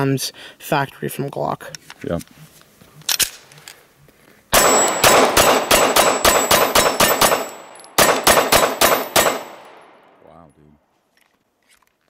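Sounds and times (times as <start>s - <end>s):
pistol shots fired rapidly: 4.6s - 9.8s.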